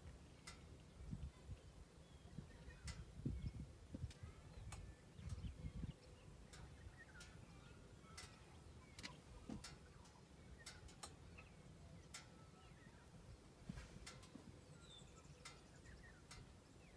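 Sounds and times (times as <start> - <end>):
soft clicks: 8.1 - 11.2.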